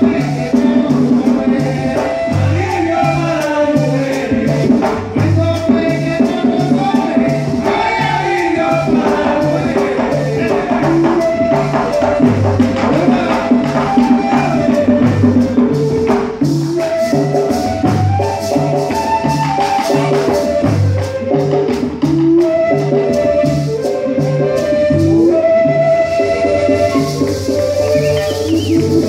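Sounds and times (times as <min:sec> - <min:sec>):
flute melody: 0:00.0 - 0:29.0
heavy low drum beat: 0:00.0 - 0:29.0
steady drum pulse: 0:00.0 - 0:29.0
shaken maraca: 0:09.2 - 0:21.3, 0:23.2 - 0:29.0.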